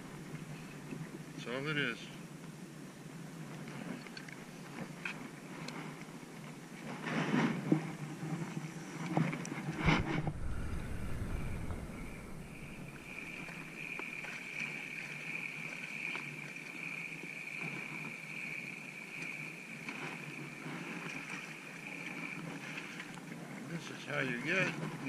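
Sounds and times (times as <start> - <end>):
wind on microphone: 9.6 - 13.9.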